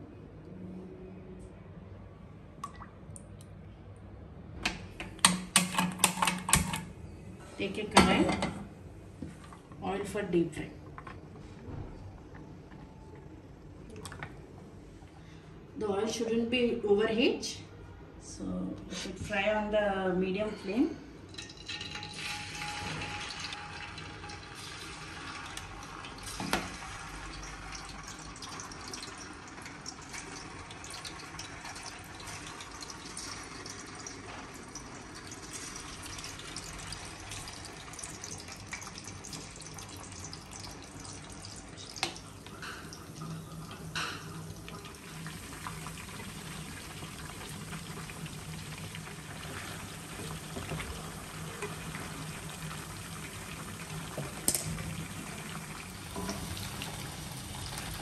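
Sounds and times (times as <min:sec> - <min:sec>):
food sizzling in oil: 0:21.5 - 0:34.2.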